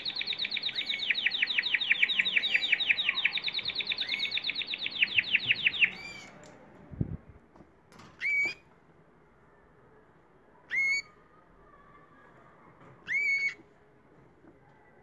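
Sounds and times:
canaries whistling call: 0.0s - 6.4s, 8.2s - 8.6s, 10.7s - 11.2s, 13.1s - 13.6s.

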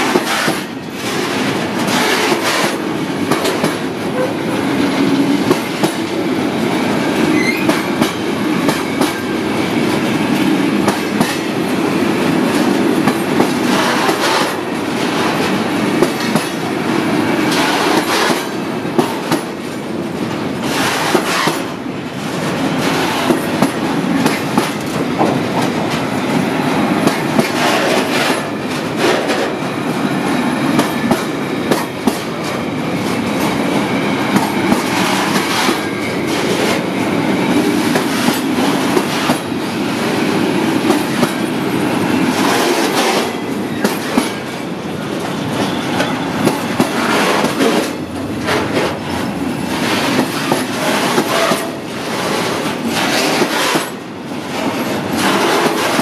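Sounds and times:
freight train rolling rumble: 0.0s - 56.0s
wheels clicking over rail joints: 42.4s - 56.0s.

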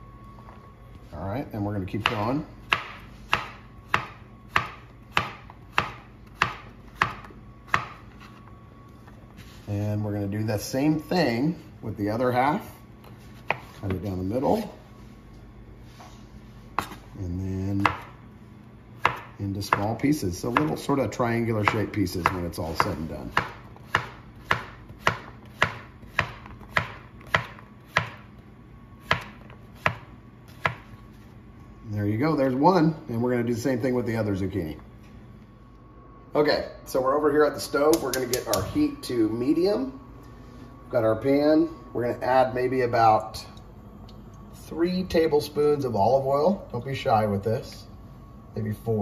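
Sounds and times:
knife chopping on cutting board: 2.0s - 8.0s, 13.4s - 13.8s, 19.0s - 19.9s, 20.5s - 20.8s, 21.6s - 28.2s, 29.0s - 30.9s.

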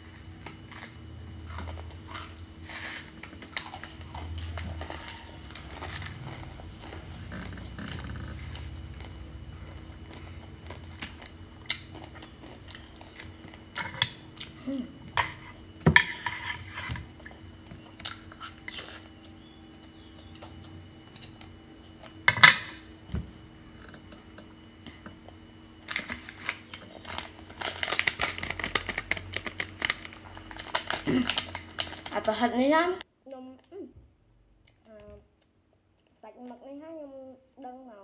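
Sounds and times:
noodles being chewed: 0.4s - 14.6s
plastic snack packet crinkling: 26.2s - 32.3s.

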